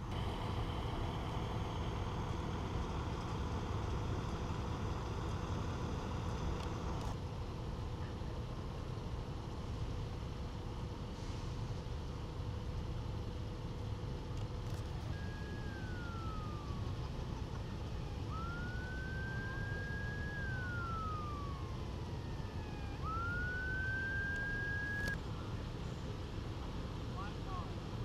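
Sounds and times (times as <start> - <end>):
emergency vehicle siren wailing: 0.0 - 7.2, 14.6 - 25.2.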